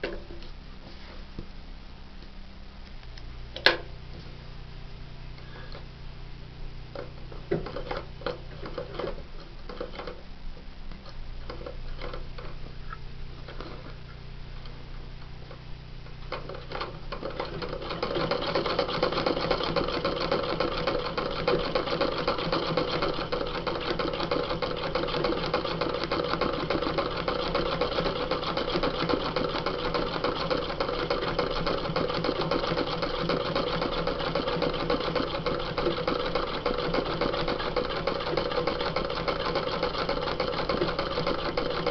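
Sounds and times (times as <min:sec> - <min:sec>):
sewing machine clicks: 0:16.3 - 0:41.9
sewing machine stitching: 0:16.3 - 0:41.9.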